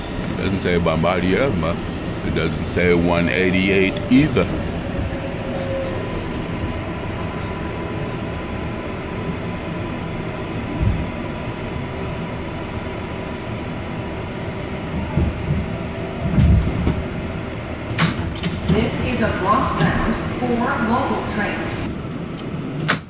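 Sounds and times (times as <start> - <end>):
subway car rumble: 0.0 - 23.0
low thumps: 10.6 - 11.4, 14.6 - 20.4.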